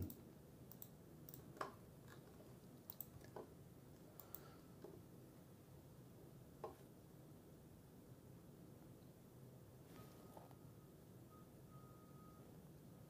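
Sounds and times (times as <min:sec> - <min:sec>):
faint computer mouse clicks: 0:00.0 - 0:01.8, 0:02.9 - 0:03.5, 0:04.1 - 0:05.0.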